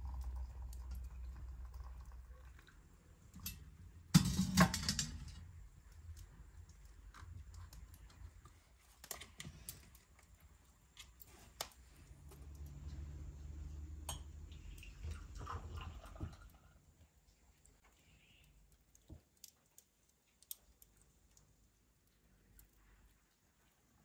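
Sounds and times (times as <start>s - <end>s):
kettle and teapots clattering on wood: 3.4s - 5.4s.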